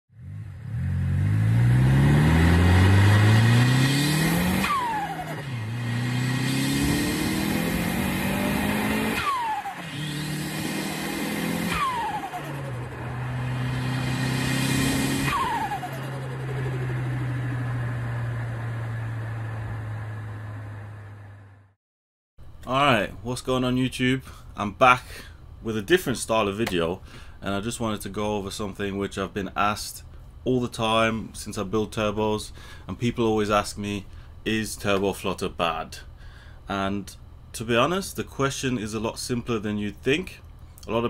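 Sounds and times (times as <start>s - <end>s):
turbocharged car engine revving: 0.1s - 21.4s
turbo whistle and flutter: 13.9s - 17.7s.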